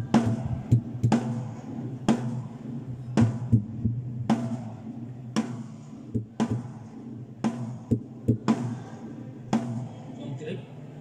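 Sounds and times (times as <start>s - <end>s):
drum kit groove: 0.0s - 11.0s.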